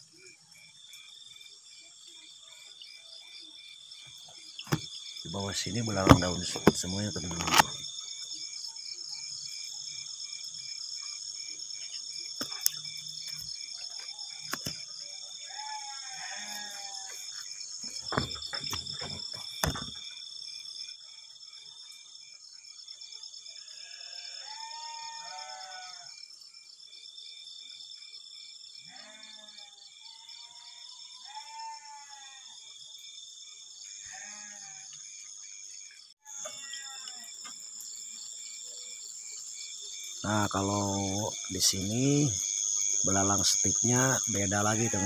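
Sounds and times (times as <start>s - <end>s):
crickets trilling: 0.0s - 45.0s
frog croaking: 4.5s - 8.5s, 39.9s - 45.0s.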